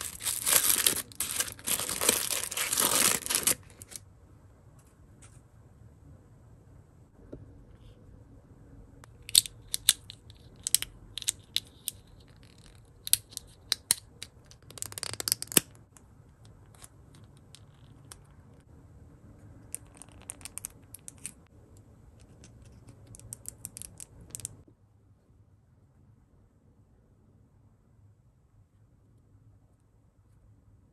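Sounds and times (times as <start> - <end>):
plastic rubbing: 0.0 - 4.0.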